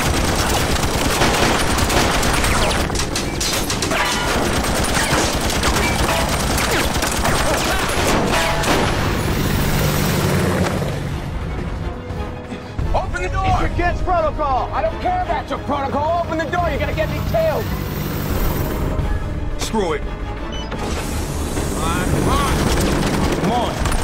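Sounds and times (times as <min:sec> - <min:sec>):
automatic gunfire: 0:00.0 - 0:09.0.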